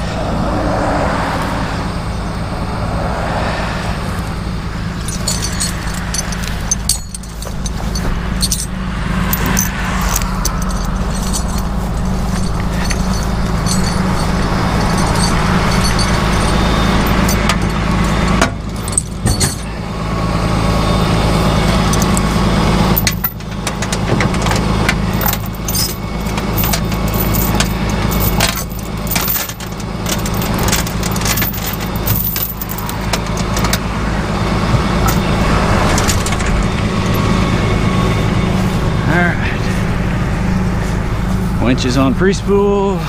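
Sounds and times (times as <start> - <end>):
truck engine idling: 0.0 - 43.0
metal clanks and chains jangling: 4.9 - 19.8, 21.7 - 33.8, 34.7 - 37.3.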